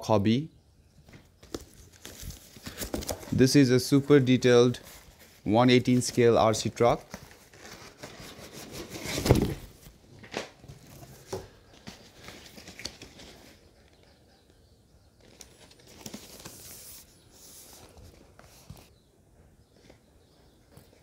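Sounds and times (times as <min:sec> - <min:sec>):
cardboard rustling and scraping: 0:07.0 - 0:13.6.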